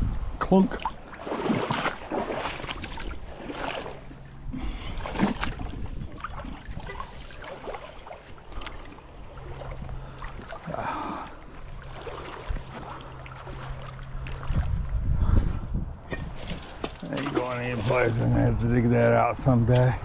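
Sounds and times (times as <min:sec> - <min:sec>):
water sloshing and rippling: 0:00.0 - 0:20.0
magnet splashing into water: 0:00.8 - 0:04.1.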